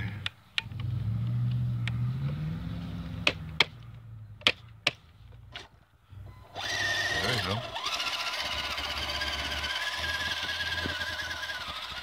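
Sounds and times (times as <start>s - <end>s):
sharp clicks and knocks: 3.2s - 5.7s
electric motor and gearbox humming: 6.4s - 12.0s.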